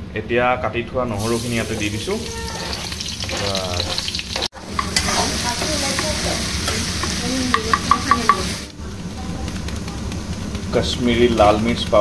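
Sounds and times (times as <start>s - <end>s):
garlic sizzling in oil: 1.2s - 8.8s
utensil tapping on pan: 2.7s - 8.6s.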